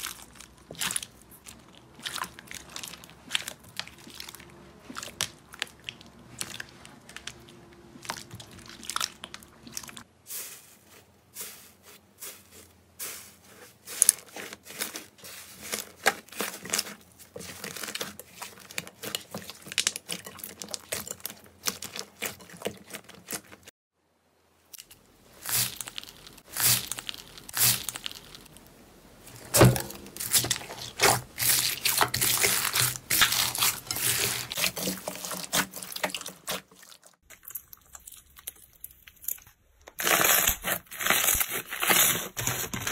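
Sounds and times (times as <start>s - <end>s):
hands squishing slime: 0.0s - 10.1s, 13.1s - 23.7s, 29.5s - 42.9s.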